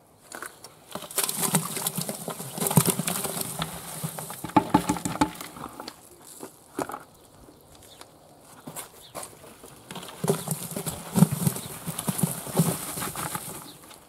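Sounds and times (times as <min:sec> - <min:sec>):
manure pouring into steel barrel: 0:00.9 - 0:05.9, 0:09.9 - 0:13.8.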